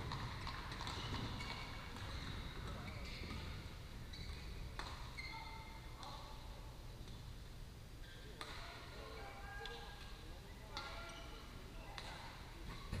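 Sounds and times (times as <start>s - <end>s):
shoes squeaking on court: 0.0s - 6.3s.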